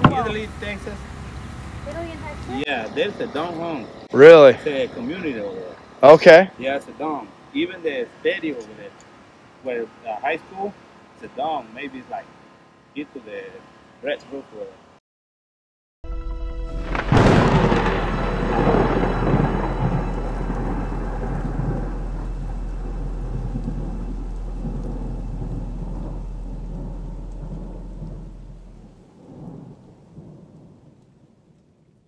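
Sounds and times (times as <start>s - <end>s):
steady rain: 0.0s - 14.8s, 16.9s - 32.0s
short tone: 16.0s - 26.4s
thunder cracking and rumbling: 16.8s - 32.0s.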